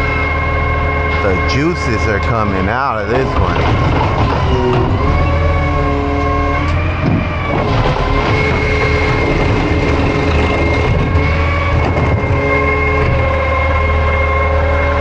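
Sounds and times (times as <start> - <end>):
diesel engine rumble: 0.0 - 15.0
hydraulic pump whining: 0.0 - 15.0.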